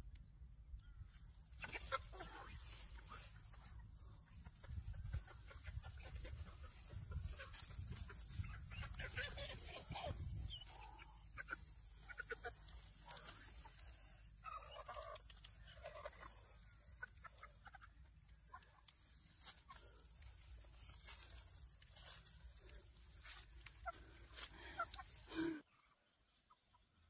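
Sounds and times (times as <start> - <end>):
rustling through grass: 1.2 - 17.4, 18.2 - 25.6
chicken squawking: 1.6 - 17.9.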